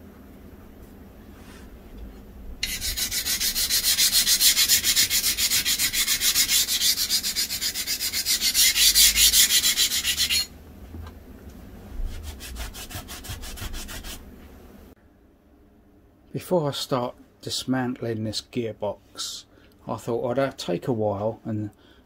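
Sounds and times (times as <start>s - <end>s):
hand file scraping metal: 2.6s - 10.5s, 12.1s - 14.2s.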